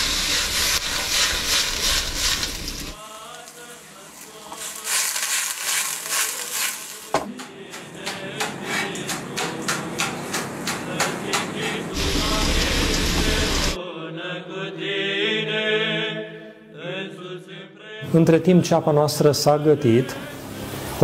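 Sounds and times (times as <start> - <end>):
knife chopping on plastic board: 7.1 - 11.5.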